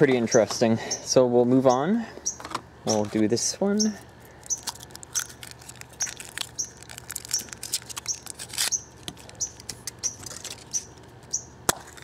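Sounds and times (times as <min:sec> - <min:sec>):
bird chirping: 0:00.2 - 0:03.0, 0:03.7 - 0:11.6
foil wrapper crinkling: 0:04.2 - 0:11.2.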